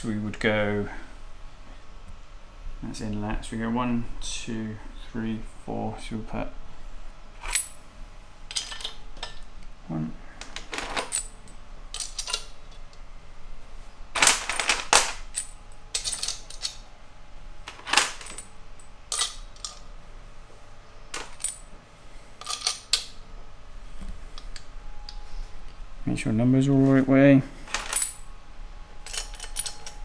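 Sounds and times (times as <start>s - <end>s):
steel rocker arms clinking: 29.0s - 30.0s.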